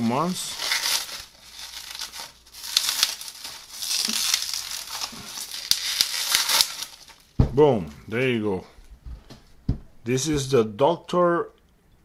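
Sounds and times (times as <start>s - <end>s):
bubble wrap crinkling: 0.0s - 7.4s.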